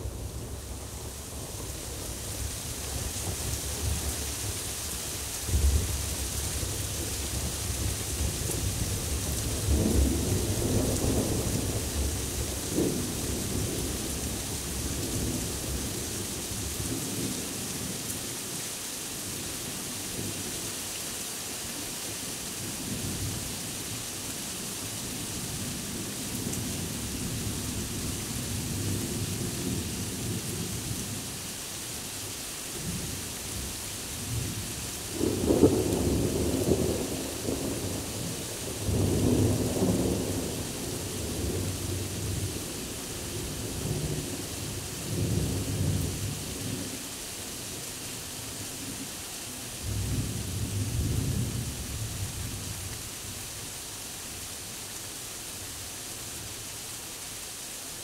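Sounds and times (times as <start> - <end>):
heavy rain falling: 0.0 - 58.0
rolling thunder: 9.4 - 14.0, 34.3 - 42.6.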